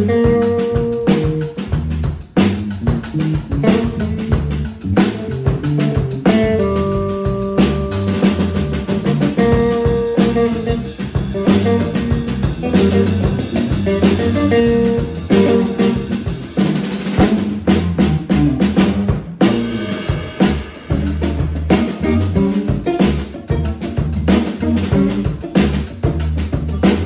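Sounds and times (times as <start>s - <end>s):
live funk band: 0.0s - 27.0s.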